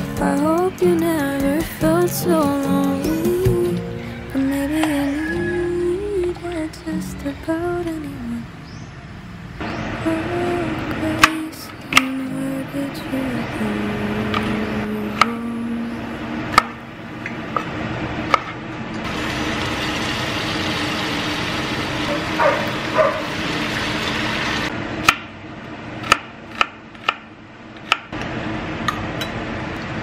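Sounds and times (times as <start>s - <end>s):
deep-frying sizzle in hot oil: 19.0s - 24.7s.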